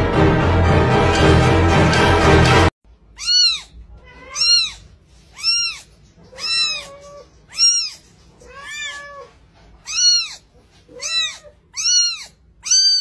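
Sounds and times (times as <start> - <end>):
kitten meowing: 3.2 - 13.0.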